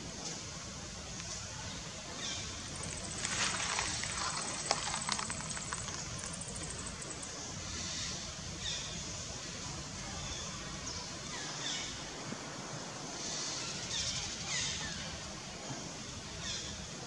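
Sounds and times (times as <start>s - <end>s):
steady outdoor hiss: 0.0s - 17.0s
rustling: 2.6s - 7.1s.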